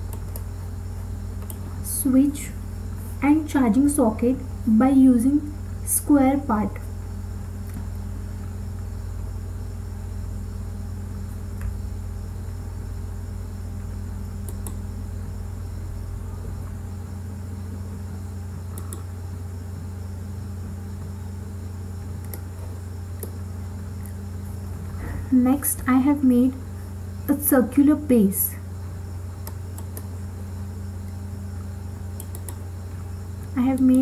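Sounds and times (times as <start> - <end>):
faint high whine: 0.0 - 34.0
low electrical hum: 0.0 - 34.0
faint clicks: 18.7 - 19.1, 22.2 - 22.5, 29.4 - 30.1, 32.2 - 32.6.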